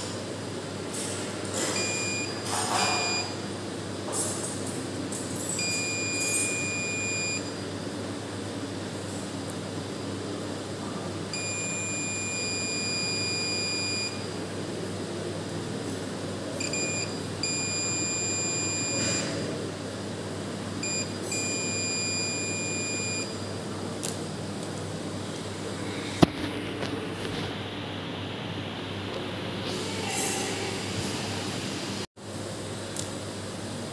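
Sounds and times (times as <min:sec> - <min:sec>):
multimeter continuity beeping: 0:01.6 - 0:03.3, 0:05.5 - 0:07.6, 0:11.3 - 0:14.4, 0:16.6 - 0:19.4, 0:20.8 - 0:23.5.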